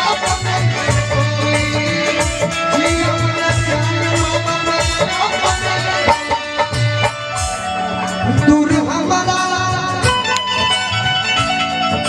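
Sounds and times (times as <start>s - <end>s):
hand drum beats: 0.0s - 7.7s.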